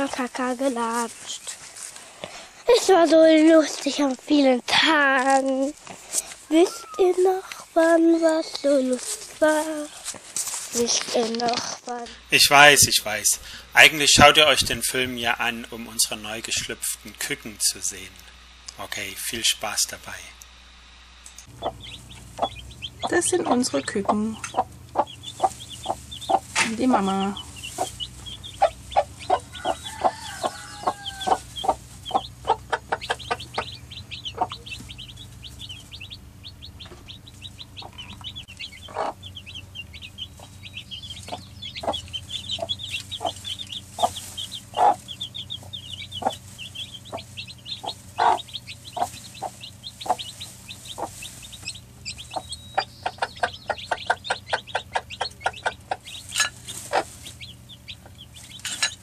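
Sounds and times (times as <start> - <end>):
chicks peeping: 0.0 - 20.5, 21.3 - 59.0
hen clucking: 21.4 - 59.0.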